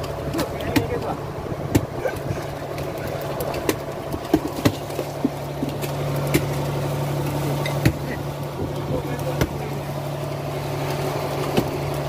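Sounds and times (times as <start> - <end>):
boat engine humming: 0.0 - 12.0
knocks on boat deck: 7.8 - 8.7.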